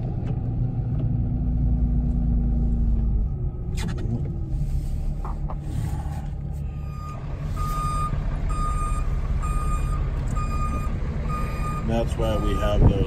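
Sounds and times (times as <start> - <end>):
truck engine rumble: 0.0 - 13.0
truck backup alarm beeping: 6.6 - 13.0.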